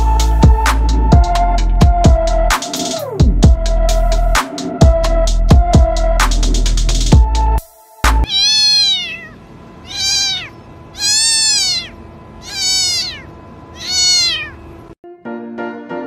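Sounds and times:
cat meowing: 8.2s - 14.6s.

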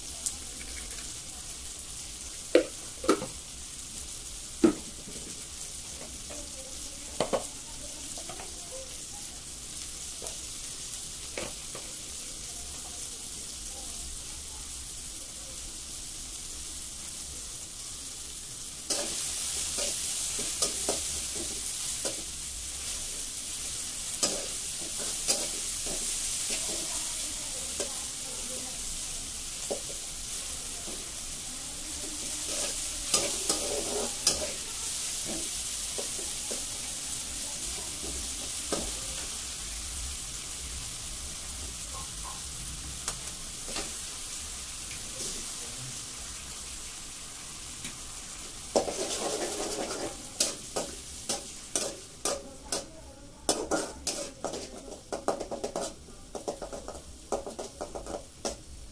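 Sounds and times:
tomatoes sizzling in oil: 0.0s - 58.9s
metal spatula scraping pan: 32.1s - 36.6s, 48.8s - 52.9s, 53.5s - 58.2s.

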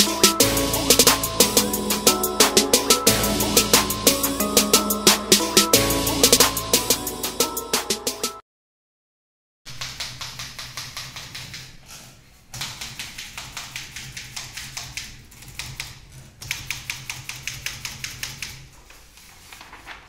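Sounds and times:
manual typewriter typing: 9.7s - 20.0s.

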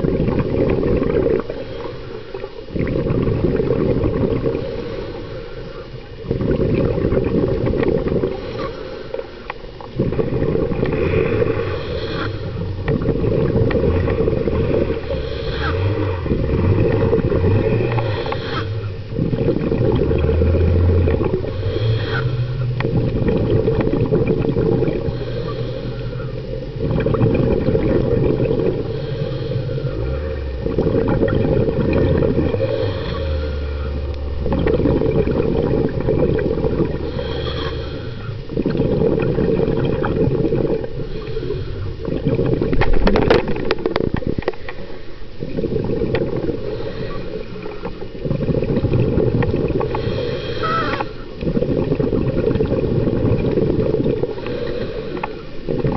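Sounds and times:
exhaled bubbles rumbling: 0.0s - 55.9s
regulator hiss on inhale: 1.2s - 2.6s, 4.4s - 6.1s, 8.2s - 9.9s, 11.1s - 13.0s, 14.4s - 16.2s, 17.0s - 19.2s, 21.4s - 23.0s, 24.8s - 26.8s, 28.4s - 30.6s, 32.5s - 34.1s, 36.8s - 38.7s, 40.6s - 42.8s, 44.4s - 48.7s, 49.6s - 51.5s, 53.7s - 55.9s.

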